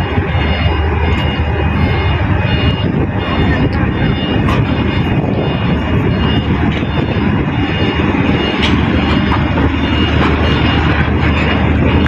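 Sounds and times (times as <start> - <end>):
engine rumble: 0.0 - 12.0.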